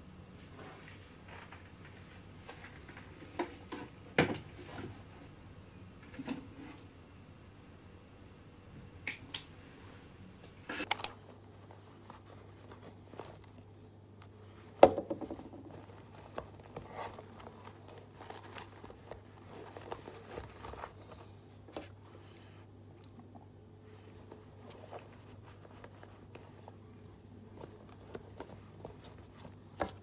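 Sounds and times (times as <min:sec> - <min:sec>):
bag rustling: 0:11.1 - 0:30.0.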